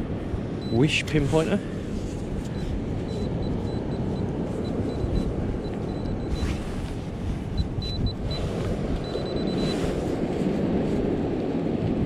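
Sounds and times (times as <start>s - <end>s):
wind buffeting microphone: 0.0s - 12.0s
metal detector beeps: 0.6s - 1.3s, 2.4s - 6.9s, 7.5s - 9.9s.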